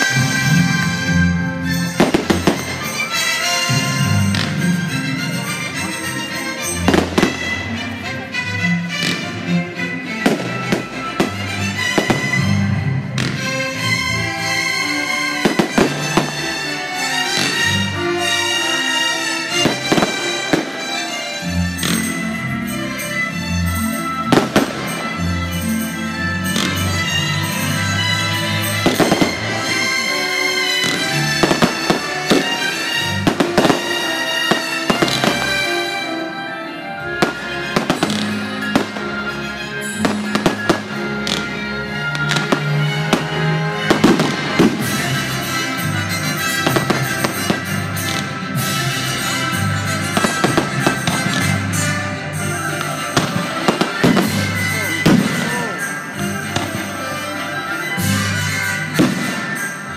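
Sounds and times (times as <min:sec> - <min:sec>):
music: 0:00.0 - 0:59.9
fireworks bangs: 0:01.7 - 0:04.9, 0:10.2 - 0:13.8, 0:15.3 - 0:18.4, 0:19.5 - 0:21.0, 0:24.3 - 0:25.6, 0:28.6 - 0:36.1, 0:39.8 - 0:41.5, 0:42.2 - 0:56.9, 0:57.9 - 0:59.9.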